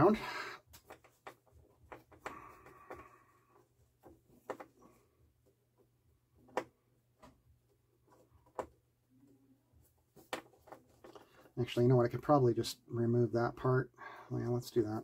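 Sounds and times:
faint clicks and taps: 0.6 - 11.8.

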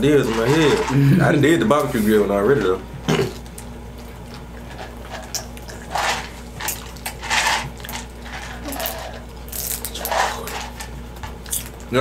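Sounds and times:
people chewing food: 3.1 - 12.0.

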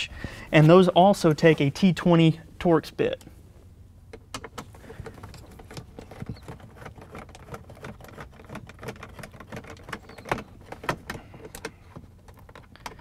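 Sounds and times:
nut driver clicks and scrapes: 4.2 - 13.0.

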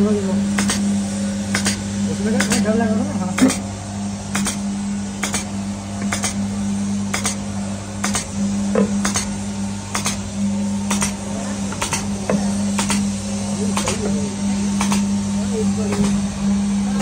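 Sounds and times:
electric motor hum: 0.0 - 17.0
sharp metallic clack: 6.1 - 6.4, 8.0 - 10.2.

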